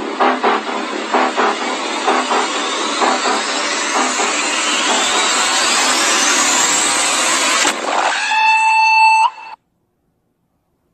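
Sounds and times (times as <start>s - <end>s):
pulsing rushing whoosh: 0.0s - 8.0s
rising whistling tone: 0.0s - 9.6s.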